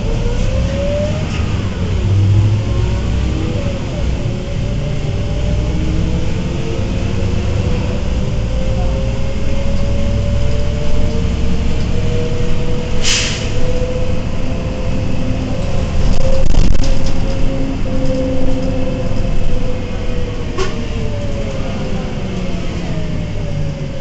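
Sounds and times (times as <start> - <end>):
bus engine rumble and drivetrain whine: 0.0 - 24.0
short sharp air hiss: 13.0 - 13.6.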